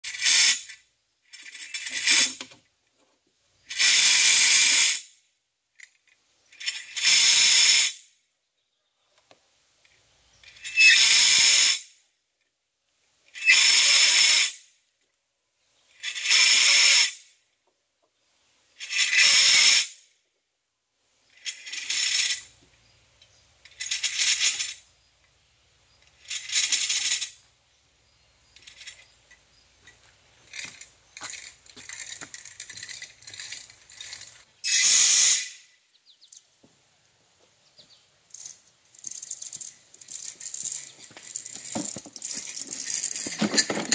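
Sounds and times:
light irregular rubble rattling: 28.4 - 34.6, 38.3 - 43.9.

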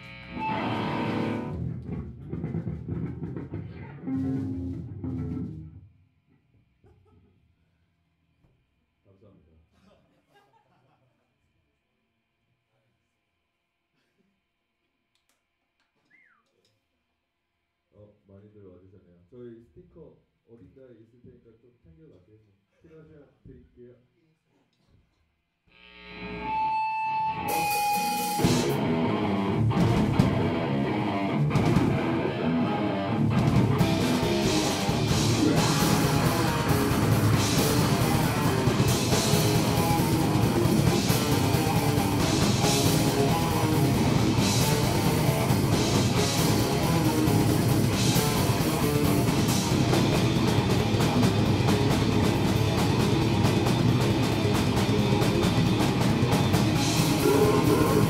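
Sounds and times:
rock band playing: 0.0 - 5.8, 26.4 - 58.0.

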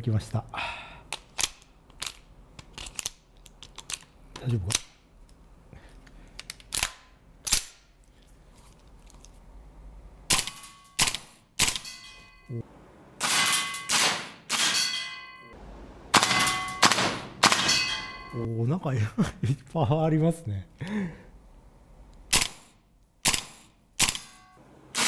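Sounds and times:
metallic ringing: 11.8 - 12.6, 13.3 - 15.6, 16.2 - 18.5
airsoft rifle firing: 13.2 - 14.9, 16.1 - 18.0, 22.3 - 25.0.

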